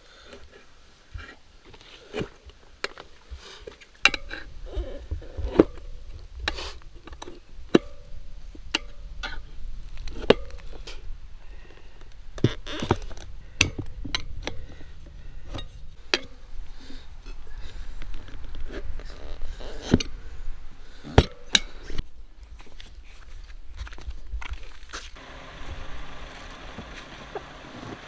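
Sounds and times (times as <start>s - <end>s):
low steady rumble: 25.2s - 28.0s.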